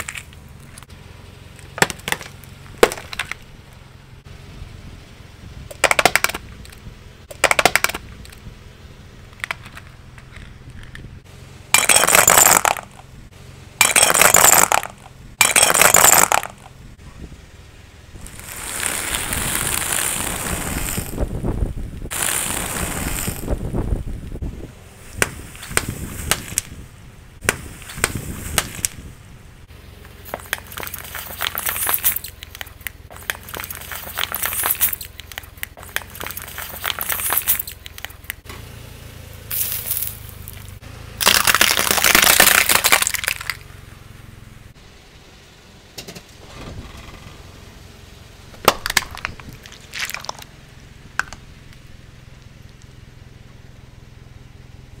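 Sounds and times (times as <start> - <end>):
sharp cracks: 5.7 - 8.4, 11.8 - 13.1, 13.8 - 16.8, 18.2 - 21.3, 22.0 - 23.7, 25.1 - 26.8, 27.4 - 29.1, 39.5 - 43.7, 48.6 - 50.5
tyre crunching cheese puffs: 18.2 - 21.2, 30.2 - 38.4, 39.5 - 43.6.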